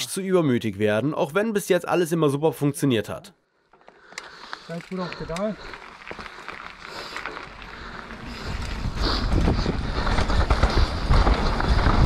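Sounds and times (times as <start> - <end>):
tyres rumbling on dirt trail: 3.8 - 12.0
wind buffeting microphone: 7.5 - 12.0
bike knocks and rattles: 8.1 - 12.0.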